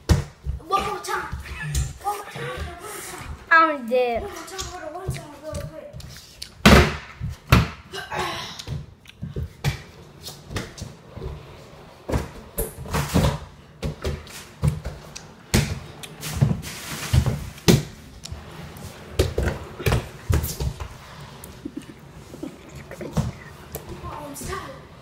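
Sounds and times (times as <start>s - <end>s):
plastic disc scraping on floor: 9.6s - 25.0s.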